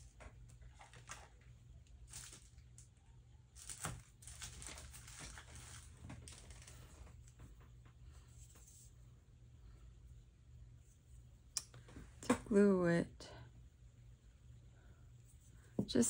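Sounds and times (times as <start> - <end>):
rustling and crinkling: 0.0 - 9.1
low steady hum: 0.0 - 16.0.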